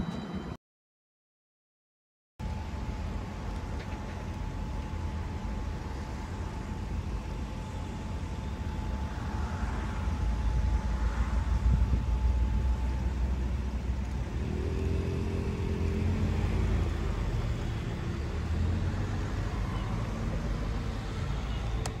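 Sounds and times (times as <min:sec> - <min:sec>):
low traffic rumble: 0:02.4 - 0:22.0
vehicle engine passing: 0:09.0 - 0:21.5.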